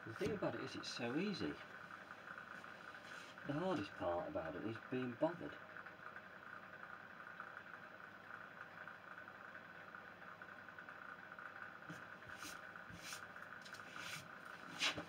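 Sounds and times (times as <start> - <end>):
wax rubbed into wood: 11.9 - 15.0.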